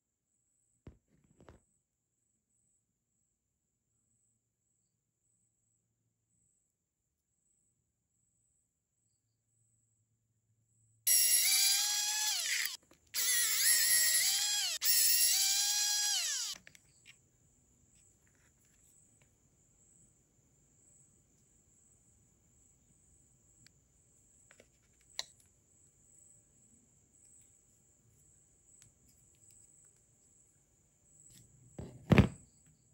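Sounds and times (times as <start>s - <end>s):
electric screwdriver whining: 11.1s - 16.6s
small parts clicking: 11.1s - 17.0s.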